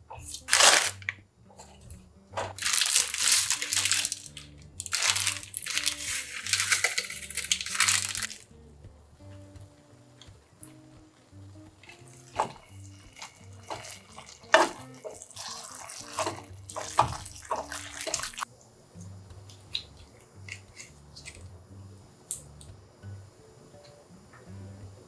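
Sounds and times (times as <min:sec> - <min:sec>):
noodles sizzling in frying pan: 0:00.4 - 0:01.0, 0:02.6 - 0:08.4, 0:11.8 - 0:18.5
tongs clacking against pan: 0:11.8 - 0:18.5.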